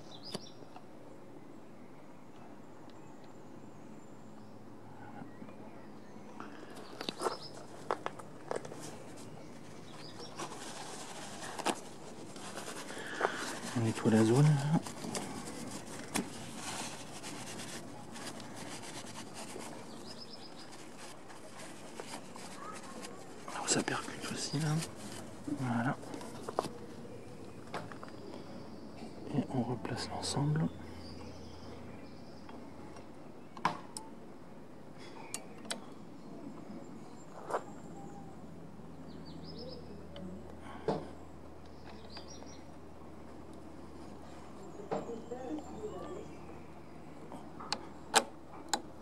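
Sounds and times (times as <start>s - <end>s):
paper towel rubbing: 10.2s - 26.7s.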